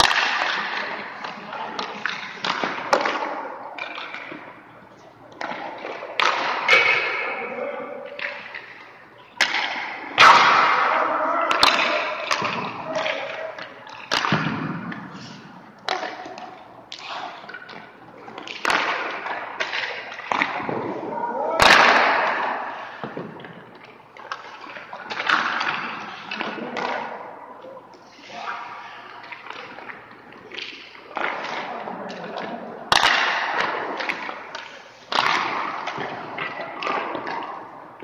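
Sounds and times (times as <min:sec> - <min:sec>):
pucks hitting pads and boards: 0:00.0 - 0:04.6, 0:05.3 - 0:38.0
sticks striking pucks: 0:00.0 - 0:04.6, 0:05.3 - 0:27.7, 0:29.2 - 0:37.8.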